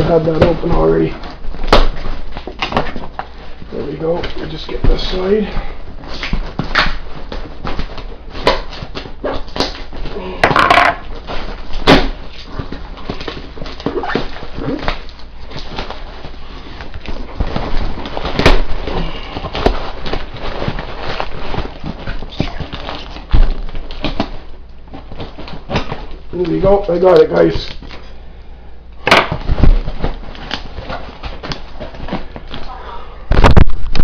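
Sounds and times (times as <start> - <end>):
cardboard knocks and rips: 0.3 - 3.3, 16.8 - 26.1, 29.0 - 32.6
cardboard scraping and crackling: 11.0 - 27.5.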